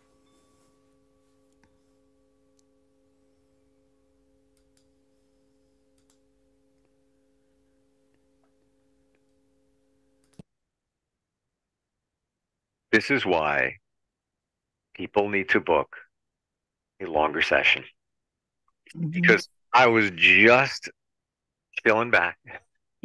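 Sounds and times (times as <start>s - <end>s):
light ticks: 6.0s - 6.2s.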